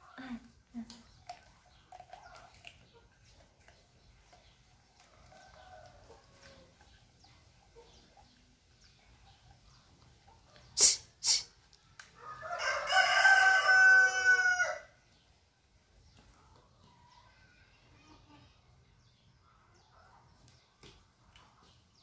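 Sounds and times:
rooster crowing: 12.2 - 14.9.

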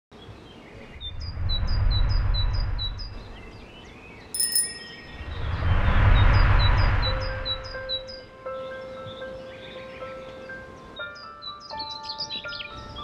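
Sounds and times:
short bright ringing tone: 4.4 - 5.3
cars passing: 5.0 - 8.4.

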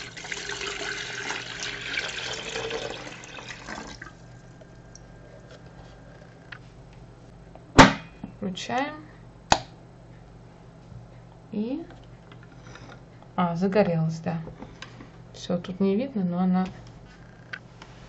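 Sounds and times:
water pouring into a kettle: 0.0 - 4.2.

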